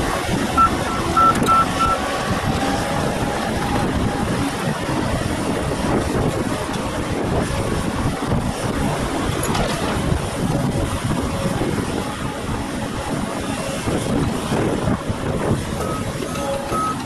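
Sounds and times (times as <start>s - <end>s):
diesel engines running: 0.0s - 17.0s
backup alarm beeping: 0.6s - 2.0s, 15.8s - 17.0s.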